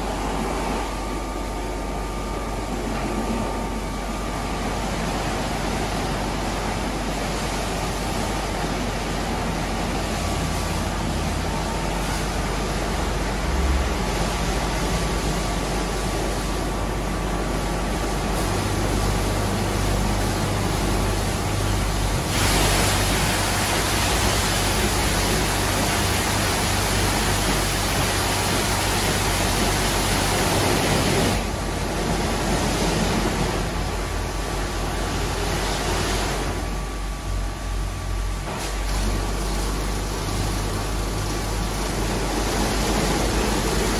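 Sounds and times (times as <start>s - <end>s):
low motor hum: 0.0s - 43.9s
water spray rushing: 18.0s - 34.0s, 38.5s - 43.9s.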